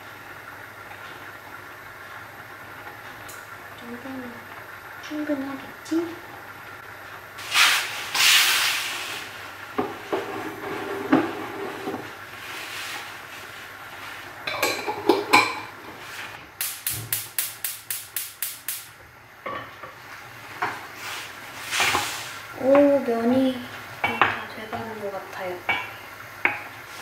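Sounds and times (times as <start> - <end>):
short hiss: 7.4 - 9.4, 16.1 - 19.0, 20.9 - 22.5.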